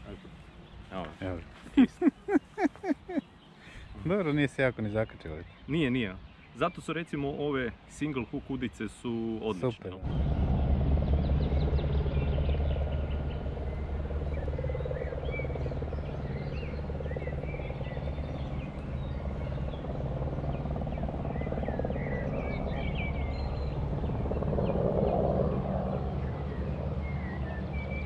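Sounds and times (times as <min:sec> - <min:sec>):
steady low rumble: 0:10.0 - 0:28.0
bird chirps and calls: 0:11.4 - 0:25.2.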